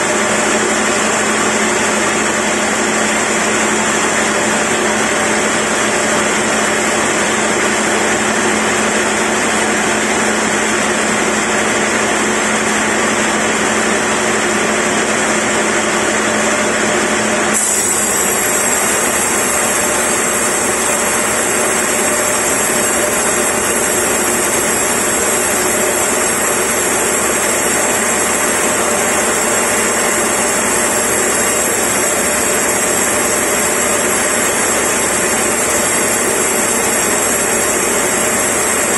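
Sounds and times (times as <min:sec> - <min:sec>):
band saw cutting timber: 0:17.4 - 0:38.9.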